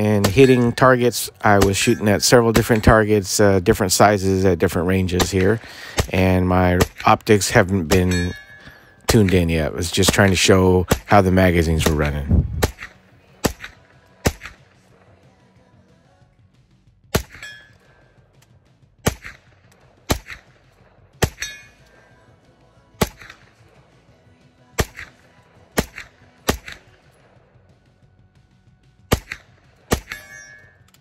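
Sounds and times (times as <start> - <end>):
carbine gunshots: 5.1 - 14.7, 17.2 - 17.5, 19.0 - 20.6, 23.0 - 23.6, 24.8 - 27.3, 29.1 - 30.6.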